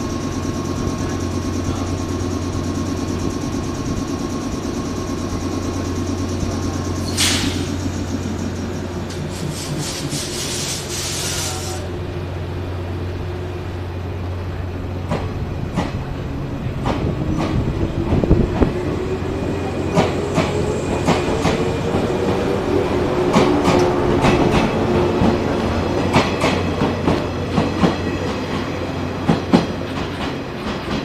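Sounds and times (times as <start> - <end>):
electric train humming: 0.0 - 31.0
compressed air hissing: 6.8 - 11.9.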